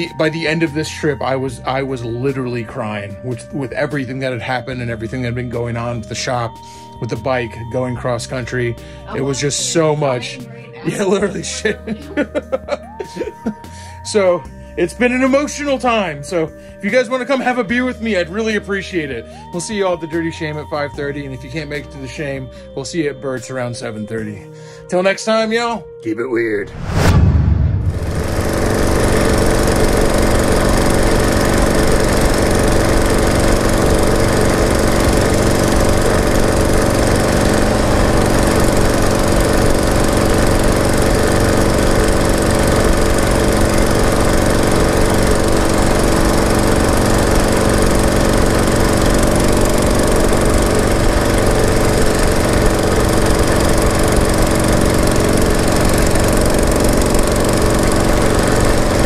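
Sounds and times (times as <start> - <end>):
motorcycle engine idling: 27.9 - 59.0.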